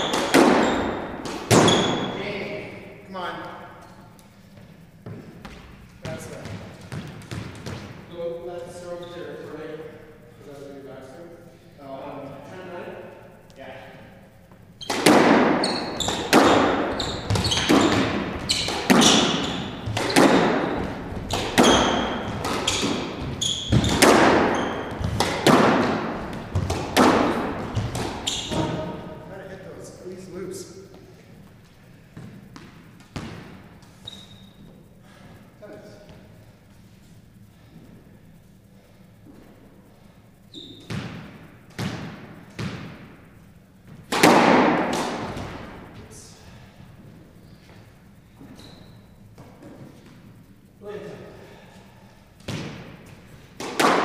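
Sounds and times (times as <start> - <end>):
shoe squeak on wooden floor: 0.0 - 2.2, 15.6 - 25.1, 28.2 - 28.9, 34.0 - 34.8, 40.5 - 40.9, 48.4 - 49.2
squash ball hitting racquets and walls: 0.0 - 3.1, 3.8 - 9.1, 14.4 - 30.2, 30.8 - 35.2, 39.0 - 50.7, 52.2 - 54.0.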